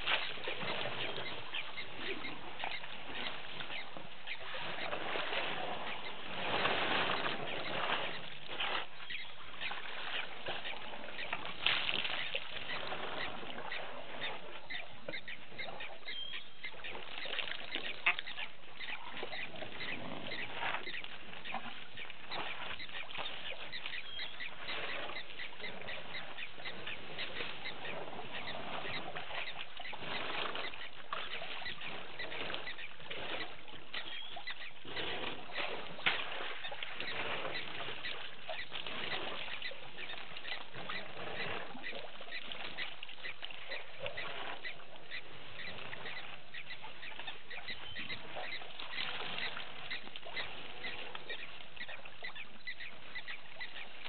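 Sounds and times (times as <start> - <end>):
water splashing and sloshing: 0.0 - 54.0.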